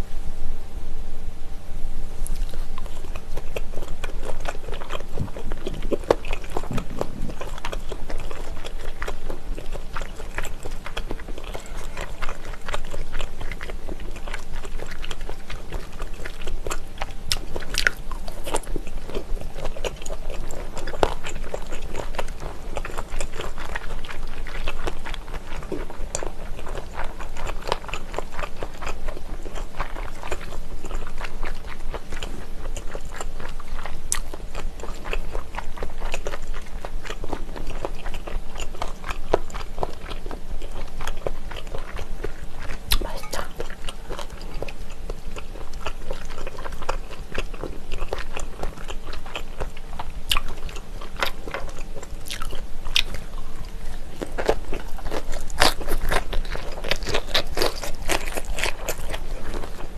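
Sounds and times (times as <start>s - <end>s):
mouth sounds: 2.2s - 9.3s
crunchy chewing and biting: 2.2s - 59.9s.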